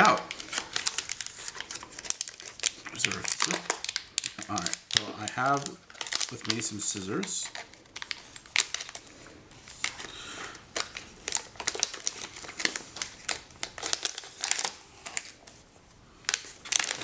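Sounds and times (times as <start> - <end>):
foil crinkling: 0.0 - 15.6, 16.2 - 17.0
scissors snipping foil: 10.8 - 15.4.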